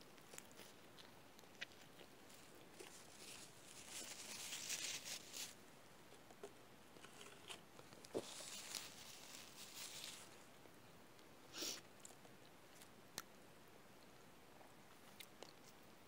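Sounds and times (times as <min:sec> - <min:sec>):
person chewing food: 0:00.0 - 0:04.5
rustling: 0:00.0 - 0:10.6.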